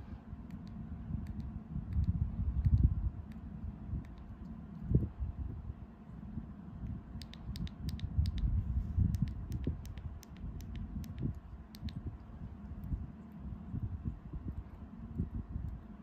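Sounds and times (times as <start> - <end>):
remote control buttons clicking: 7.2 - 8.5, 9.1 - 12.0.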